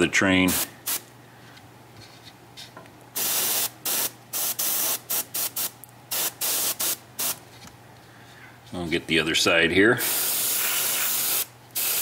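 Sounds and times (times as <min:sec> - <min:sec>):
airbrush spraying hiss: 0:00.5 - 0:01.0, 0:03.2 - 0:07.4, 0:10.0 - 0:12.0.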